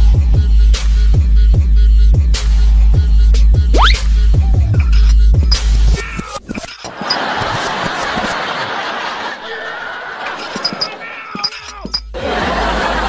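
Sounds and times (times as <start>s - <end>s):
group of people laughing: 6.5s - 13.0s.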